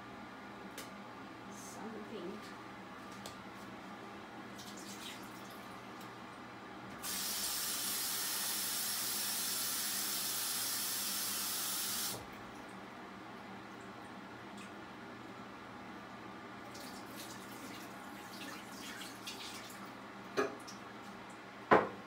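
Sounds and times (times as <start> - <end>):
water tap running: 7.0 - 12.3, 16.7 - 19.8.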